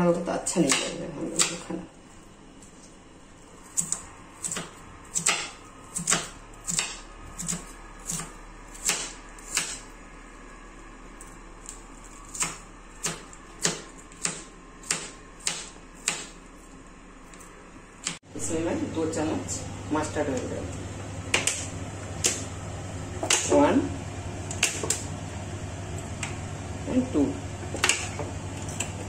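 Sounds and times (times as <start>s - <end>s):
knife chopping on cutting board: 3.8s - 9.8s, 12.3s - 16.4s.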